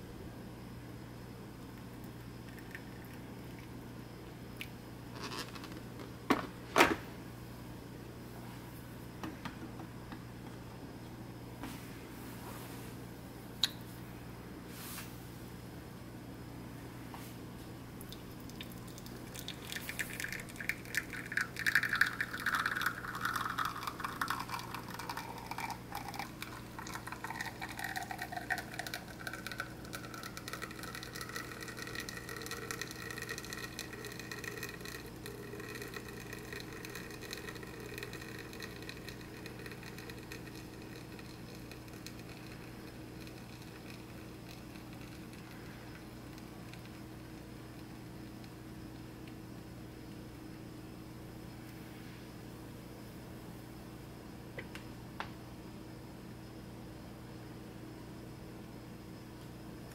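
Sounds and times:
espresso streaming into a glass cup: 0:01.8 - 0:03.7, 0:18.2 - 0:48.9.

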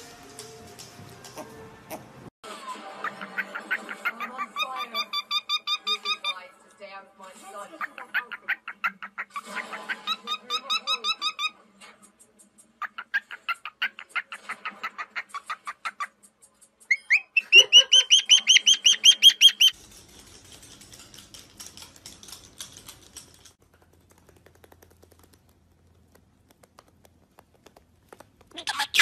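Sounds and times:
cockatiel chirping: 0:03.0 - 0:06.4, 0:07.9 - 0:11.6, 0:16.8 - 0:19.8, 0:28.6 - 0:29.0.

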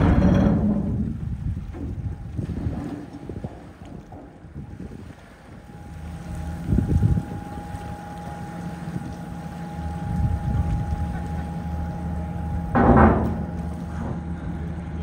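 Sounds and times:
ferry ramp whine: 0:00.0 - 0:02.1, 0:05.5 - 0:15.0
ramp bumping onto slipway: 0:00.0 - 0:05.0, 0:12.7 - 0:14.4
diesel engines droning: 0:05.6 - 0:15.0.

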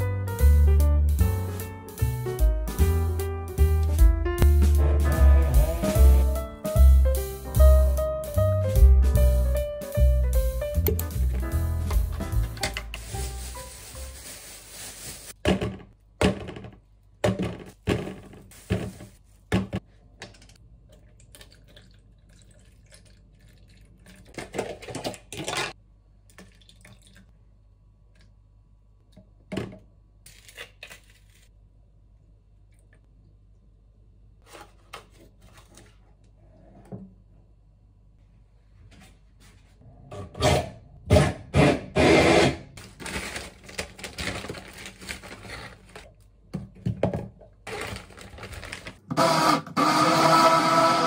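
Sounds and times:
plastic bag rustling: 0:12.2 - 0:15.4, 0:42.8 - 0:46.1, 0:47.6 - 0:49.1
liquid pouring: 0:20.9 - 0:24.4, 0:26.3 - 0:27.3.

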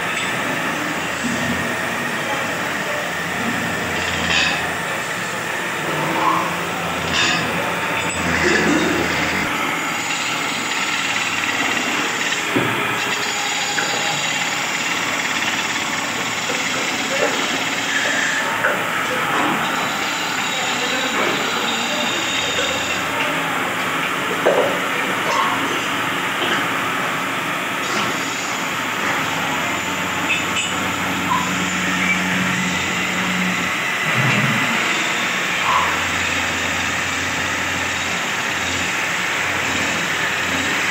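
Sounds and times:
wood lathe cutting wood: 0:03.2 - 0:23.2, 0:29.2 - 0:40.9.

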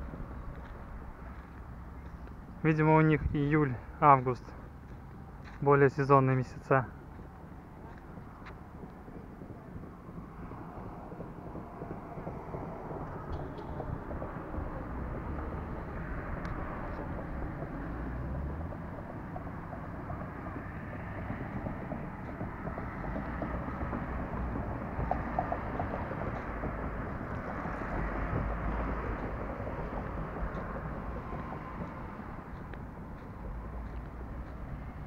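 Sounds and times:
wind buffeting microphone: 0:00.0 - 0:05.4, 0:06.9 - 0:35.0.

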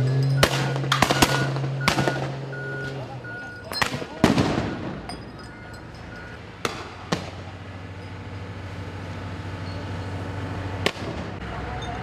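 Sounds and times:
sharp bangs: 0:00.0 - 0:02.5, 0:03.6 - 0:05.4, 0:06.6 - 0:07.6
truck engine running: 0:00.0 - 0:12.0.

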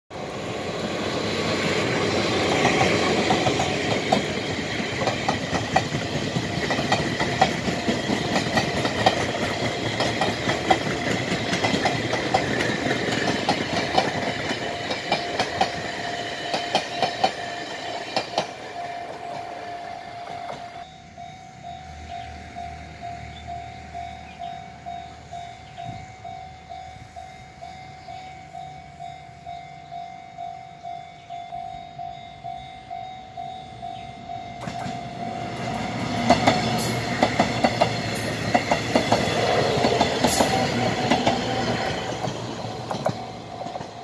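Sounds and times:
train passing rumble: 0:00.1 - 0:44.0
wheels clattering over rail joints: 0:01.1 - 0:19.6
level crossing warning bell: 0:01.6 - 0:44.0.

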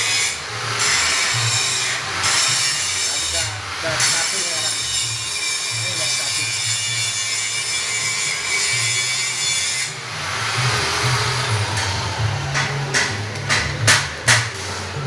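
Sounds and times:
motor hum: 0:10.0 - 0:15.0.

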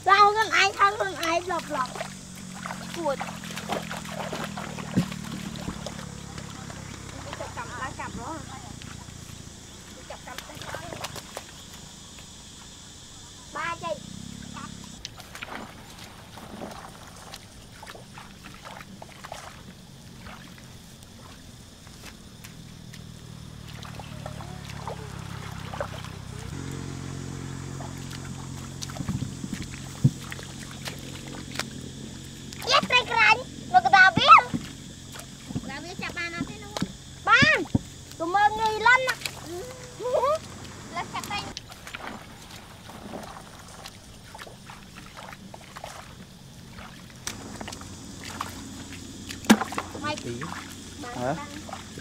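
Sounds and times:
sharp splash: 0:00.0 - 0:11.8, 0:14.5 - 0:52.0
steady low hum: 0:00.0 - 0:52.0
wading in muddy water: 0:00.0 - 0:52.0.

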